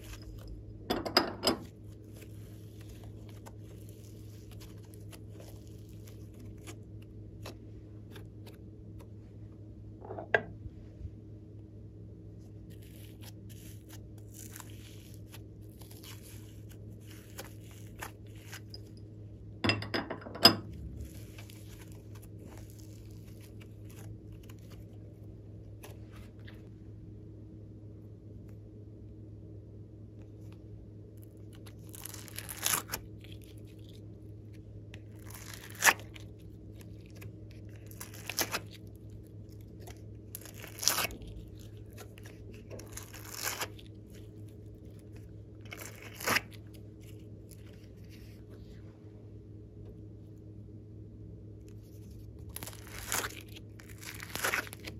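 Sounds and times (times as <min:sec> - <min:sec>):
low background hum: 0:00.0 - 0:54.9
sticky crackles: 0:01.9 - 0:09.1, 0:12.7 - 0:18.8, 0:31.2 - 0:48.4, 0:51.7 - 0:54.9
slime squished by hand: 0:52.4 - 0:54.9.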